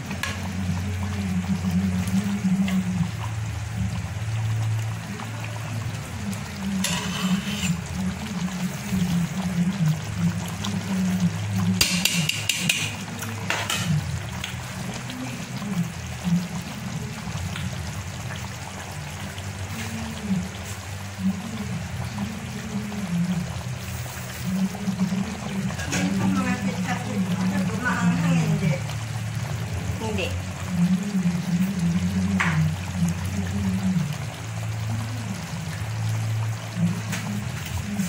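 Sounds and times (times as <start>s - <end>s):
stew bubbling in a pot: 0.0s - 38.0s.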